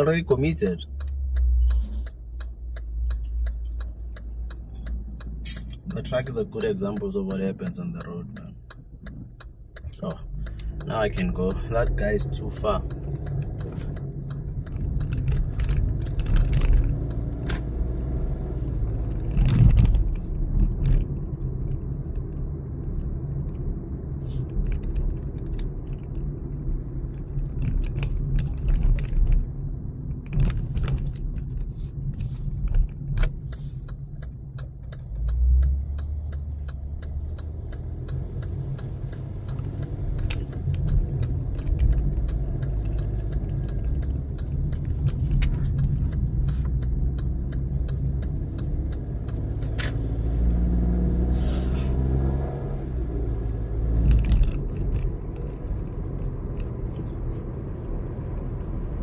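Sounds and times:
engine and tyre rumble: 0.0 - 59.0
clicks and rattling inside car: 1.6 - 17.9, 18.9 - 23.7, 24.3 - 35.2, 38.4 - 50.3, 53.4 - 59.0.

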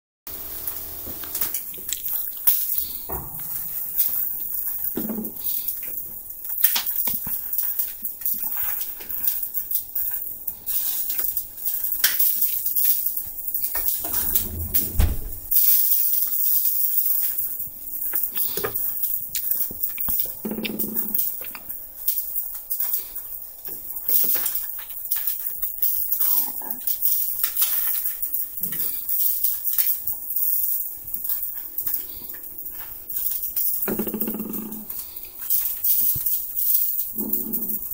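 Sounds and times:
dishwasher racks rattling: 13.8 - 15.5.

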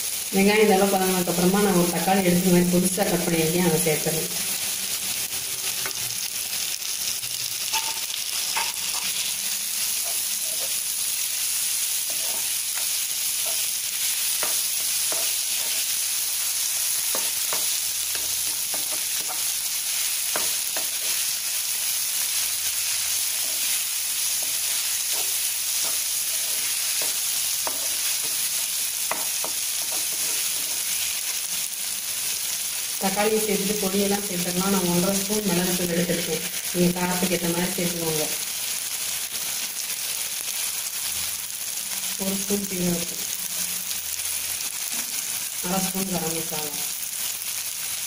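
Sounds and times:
vegetables sizzling in oil: 0.0 - 48.0
spatula scraping a pan: 12.0 - 16.0, 23.1 - 31.0.

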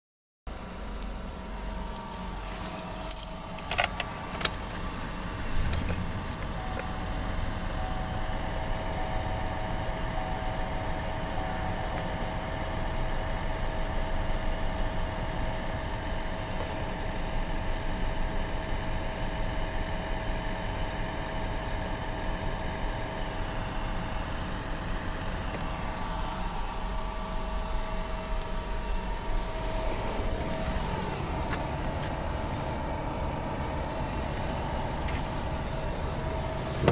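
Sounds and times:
truck engine starting and idling: 0.5 - 36.9
keys jangling in ignition: 2.0 - 4.8, 5.5 - 7.0.

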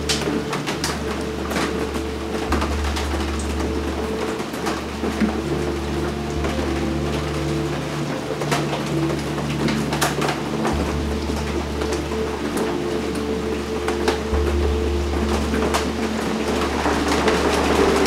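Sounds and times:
ambient drone music: 0.0 - 18.0.

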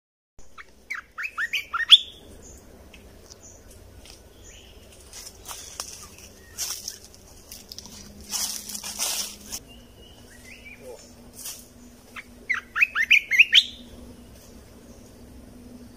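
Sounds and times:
bird chirping: 0.4 - 7.2, 8.7 - 15.9
wings fluttering: 0.6 - 9.6.

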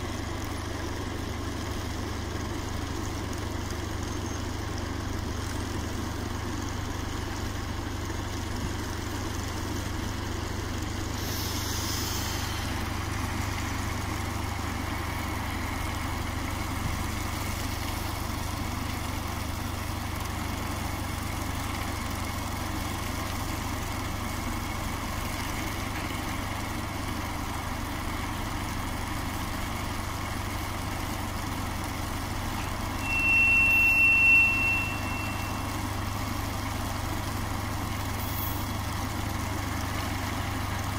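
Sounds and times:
diesel locomotive rumble: 0.0 - 40.9
brief hiss: 11.2 - 12.8
high-pitched train whistle: 33.0 - 35.9.

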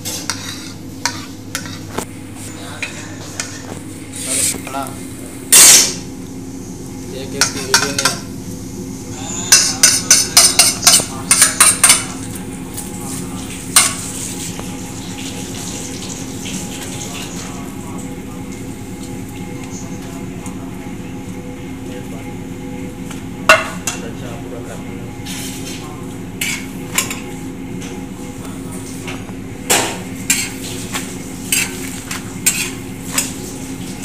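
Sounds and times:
steady low hum: 0.0 - 34.0
spoon tapping on griddle: 9.5 - 12.1.

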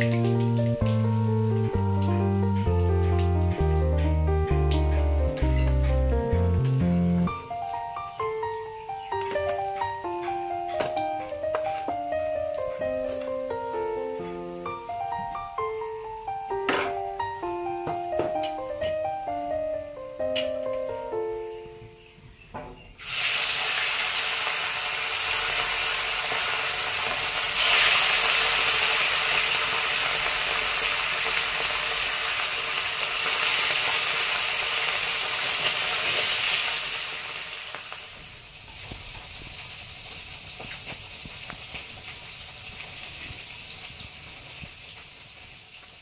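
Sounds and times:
fish sizzling in oil: 0.0 - 13.3, 23.0 - 46.0.

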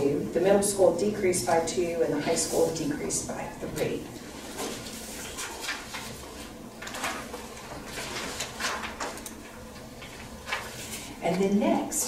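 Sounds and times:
low room hum: 0.0 - 12.0
paper rustling and shuffling: 4.2 - 11.2.

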